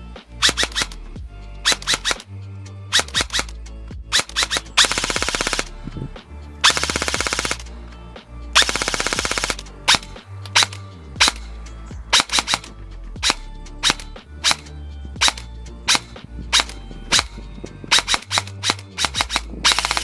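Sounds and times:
airsoft gun full-auto bursts: 0.4s - 1.0s, 1.7s - 2.2s, 2.9s - 3.5s, 4.1s - 5.7s, 6.6s - 7.7s, 8.6s - 11.4s, 12.1s - 17.3s, 17.9s - 20.0s
airsoft gun single shots: 0.4s - 1.0s, 1.6s - 2.3s, 2.9s - 3.5s, 4.1s - 5.7s, 6.6s - 7.7s, 8.6s - 11.5s, 12.1s - 17.3s, 17.9s - 20.0s.

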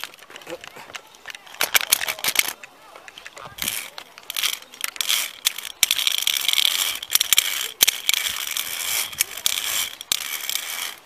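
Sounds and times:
sharp metal clicks: 0.0s - 11.0s
metal gear scraping along steel cable: 3.5s - 11.0s.

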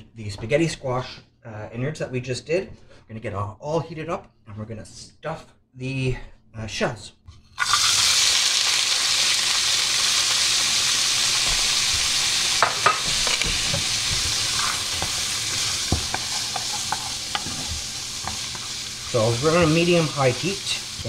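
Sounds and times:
vegetables sizzling in oil: 7.6s - 21.0s
wooden spoon knocking against pan: 11.4s - 18.7s.

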